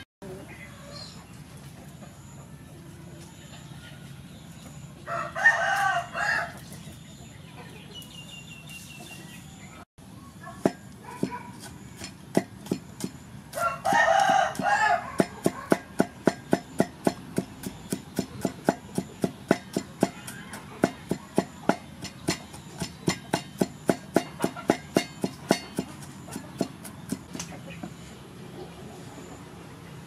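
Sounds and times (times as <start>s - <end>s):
rooster crowing: 5.0s - 6.6s, 13.5s - 15.8s
cleaver chopping on wooden block: 13.8s - 27.5s.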